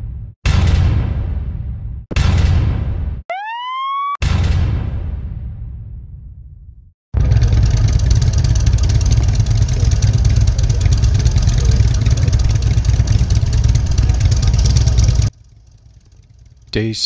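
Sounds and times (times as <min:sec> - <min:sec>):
motorcycle engine rumble: 0:07.2 - 0:17.0
road noise: 0:07.3 - 0:17.0.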